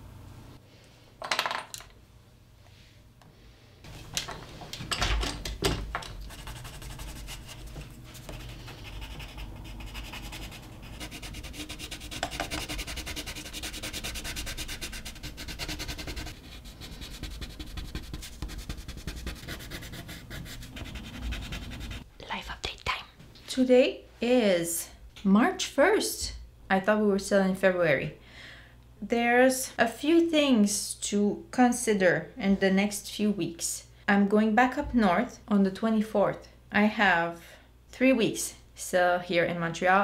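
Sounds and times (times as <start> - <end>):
pencil scratching on paper: 6.3 - 22.0.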